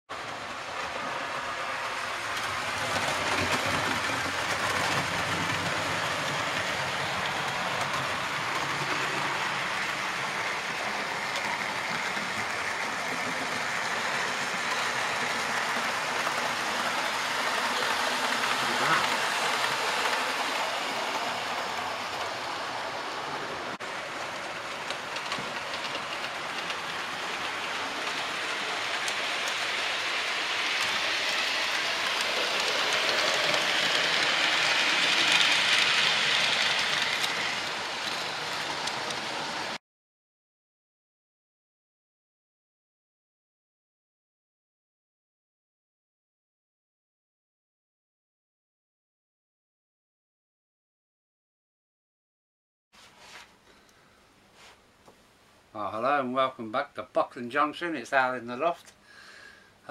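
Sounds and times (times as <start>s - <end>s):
model trains running on track: 0.1s - 39.8s
wheels clicking over rails: 0.3s - 39.8s.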